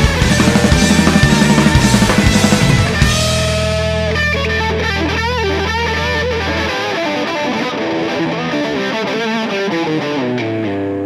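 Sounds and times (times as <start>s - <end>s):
distorted electric guitar: 0.0s - 11.0s
rock band playing: 0.0s - 11.0s.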